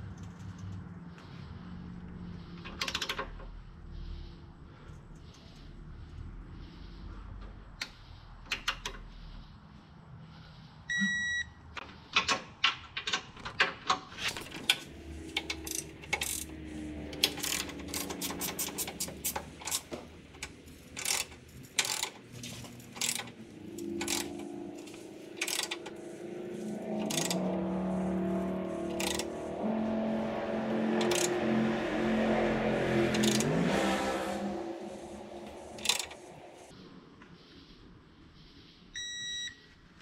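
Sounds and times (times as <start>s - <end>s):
short beep: 10.9s - 11.6s, 39.0s - 39.6s
wrench ratchet clicking: 14.6s - 16.5s, 17.1s - 25.9s, 27.0s - 27.4s, 28.9s - 29.3s, 31.0s - 31.3s, 33.1s - 33.5s, 35.8s - 36.3s.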